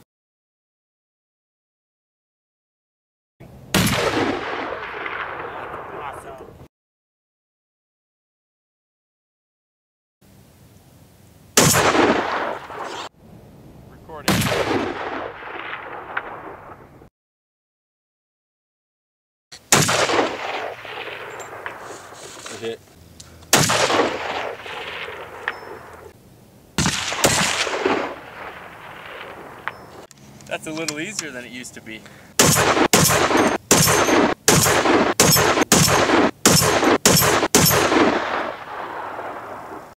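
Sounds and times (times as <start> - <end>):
rifle shots with echo: 3.7 - 6.3, 11.6 - 13.1, 14.2 - 16.9, 19.7 - 22.2, 23.5 - 26.1, 26.8 - 30.1, 32.4 - 39.8.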